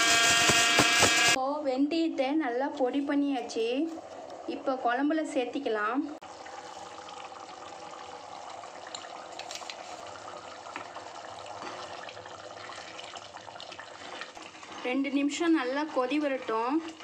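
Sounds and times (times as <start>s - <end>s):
curry boiling and bubbling: 3.4s - 17.0s.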